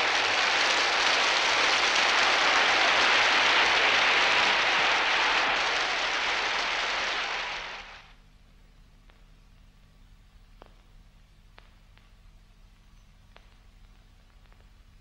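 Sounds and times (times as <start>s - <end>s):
crowd applauding: 0.0s - 8.2s.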